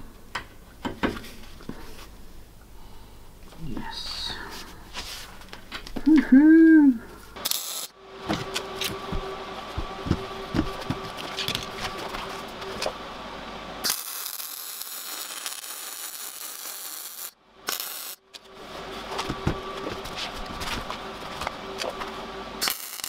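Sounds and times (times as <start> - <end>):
steady hum: 0.0 - 23.0
welding arc hissing: 7.4 - 8.0, 13.8 - 18.4, 22.6 - 23.0.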